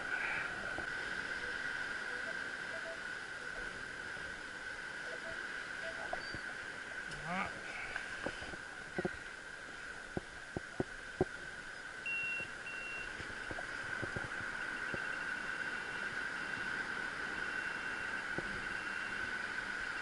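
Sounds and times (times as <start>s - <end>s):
steady high hum: 0.0s - 20.0s
metal detector beeping: 2.1s - 3.0s, 5.1s - 6.5s, 12.1s - 13.1s, 14.7s - 16.1s.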